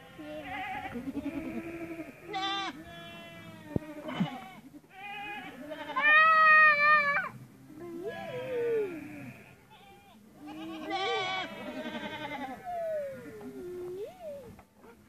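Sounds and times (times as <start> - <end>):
goats bleating: 0.0 - 7.4, 8.0 - 13.5.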